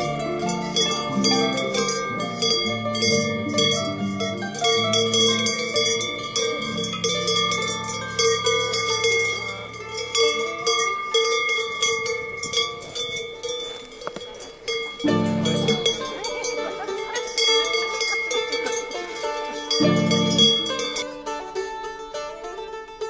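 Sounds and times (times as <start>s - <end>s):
soft music with low notes: 0.0s - 9.6s, 15.0s - 16.2s
steady ringing tone: 0.0s - 21.0s
cowbells clanging: 0.0s - 23.0s.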